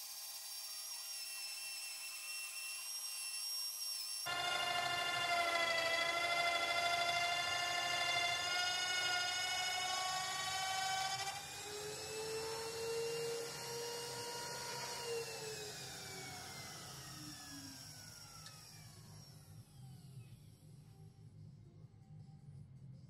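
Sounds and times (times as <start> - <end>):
router and lathe motors whining: 0.0 - 20.1
motors winding down: 4.3 - 19.9.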